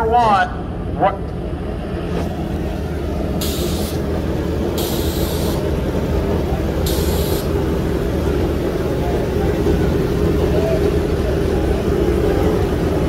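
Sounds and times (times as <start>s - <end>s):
motorcycle engines idling: 0.0s - 13.0s
short hisses of air: 3.4s - 4.0s, 4.8s - 5.6s, 6.9s - 7.5s.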